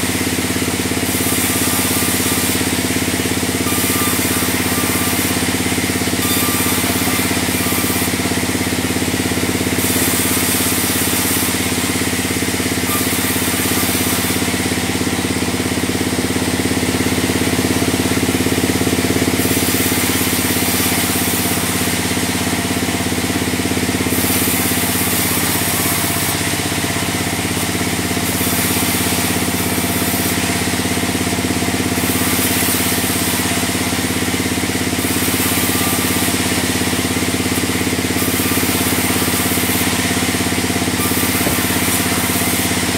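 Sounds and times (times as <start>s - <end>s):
bandsaw mill humming: 0.0s - 42.9s
high saw hiss: 0.0s - 42.9s.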